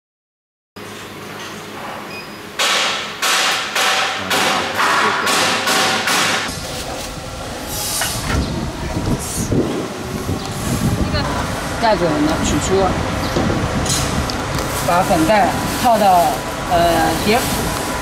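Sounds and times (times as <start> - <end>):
low rumbling: 6.4 - 18.0
compressed air hissing blasts: 7.6 - 8.4.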